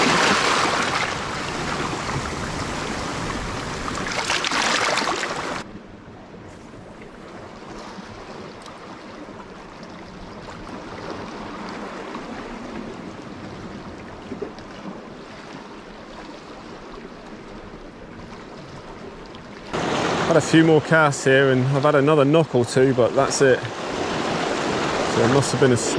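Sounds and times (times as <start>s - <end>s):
surf washing over rocks: 0.0s - 5.6s, 19.7s - 25.9s.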